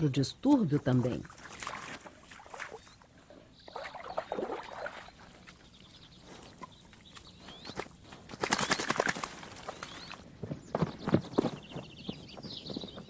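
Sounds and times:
dog splashing through water: 0:01.2 - 0:03.0, 0:03.7 - 0:05.6, 0:08.4 - 0:09.8.

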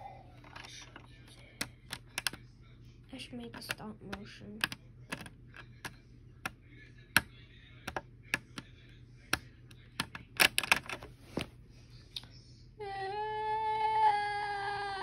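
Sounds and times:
plastic bricks clicking: 0:04.6 - 0:05.3, 0:10.0 - 0:11.1.

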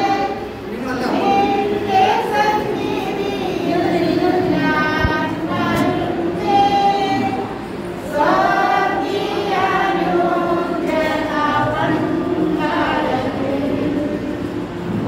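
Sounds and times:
group of voices singing: 0:00.0 - 0:15.0.

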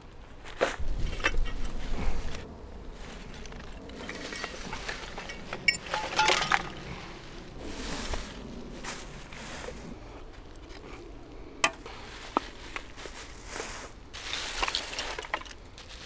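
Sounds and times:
litter clinking: 0:04.0 - 0:06.9.

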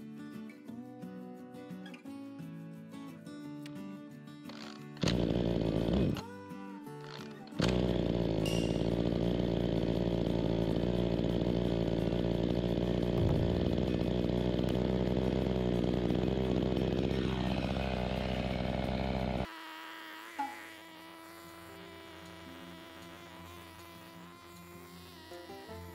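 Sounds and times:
starter cord pull: 0:04.5 - 0:06.3, 0:07.1 - 0:19.5
chainsaw engine idling: 0:05.0 - 0:06.3, 0:07.6 - 0:19.5.

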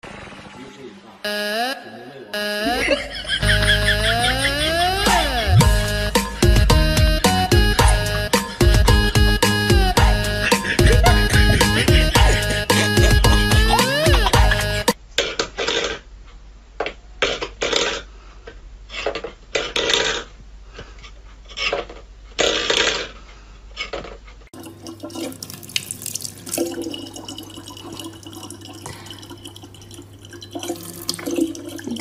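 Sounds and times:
low hum: 0:02.6 - 0:14.9
tap water running into sink: 0:24.6 - 0:32.0.

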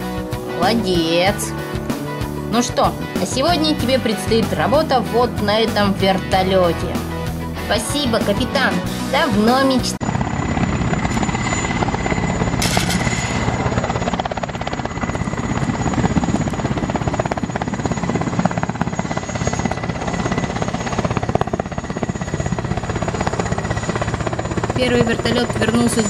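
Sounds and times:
helicopter rotor chop: 0:00.0 - 0:26.0
thin high whine: 0:10.0 - 0:16.5.

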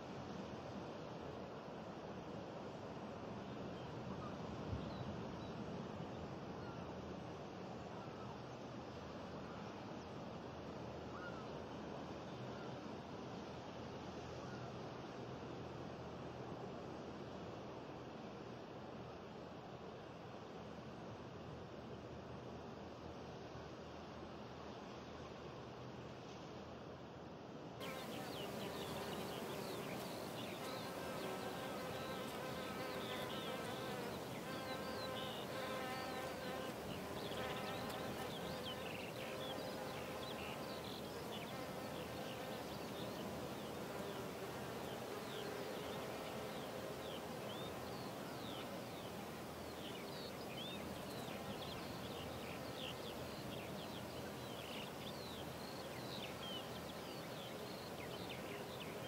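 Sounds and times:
steady outdoor hiss: 0:00.0 - 0:59.0
insects buzzing: 0:27.8 - 0:59.0.

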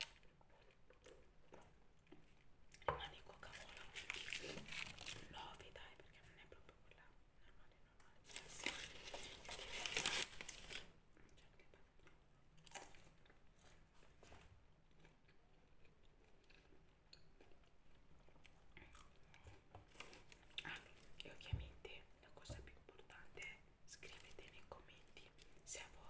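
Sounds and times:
person biting and chewing food: 0:12.6 - 0:13.9.

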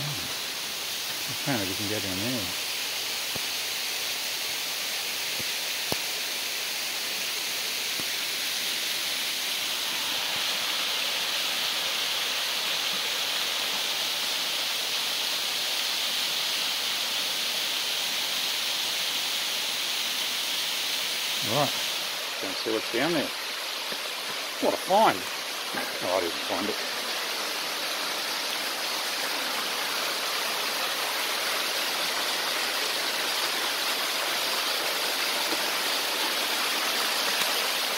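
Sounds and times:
waterfall rushing: 0:00.0 - 0:37.9.

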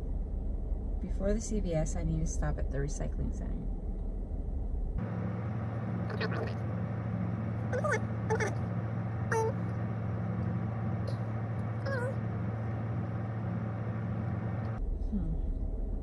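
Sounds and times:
car engine idling: 0:00.0 - 0:16.0
small animal high calls: 0:07.7 - 0:08.6, 0:09.3 - 0:09.6, 0:11.8 - 0:12.2.

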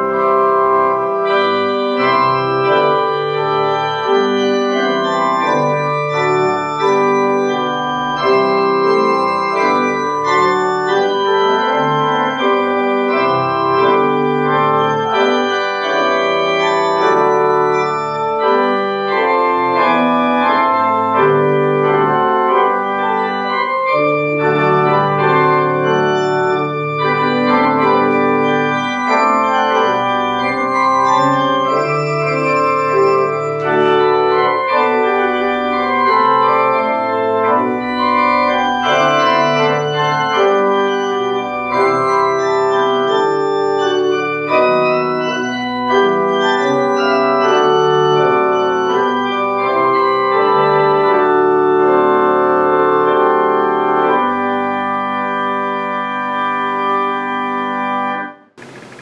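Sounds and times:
organ playing sustained chords: 0:00.0 - 0:59.0.

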